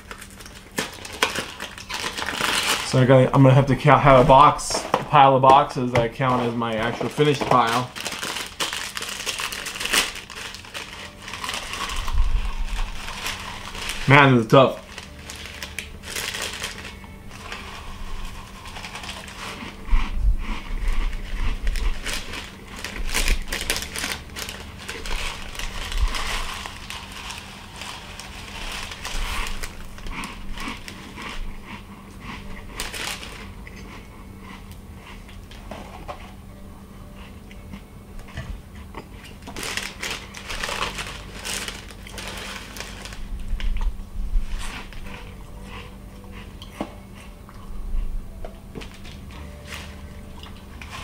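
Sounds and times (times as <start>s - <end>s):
plastic bag crinkling: 0.0s - 31.7s, 32.4s - 33.8s, 39.3s - 45.3s, 48.8s - 51.0s
cereal crunching: 0.0s - 34.0s, 39.4s - 45.3s
cereal pouring: 6.2s - 19.7s, 21.8s - 31.3s.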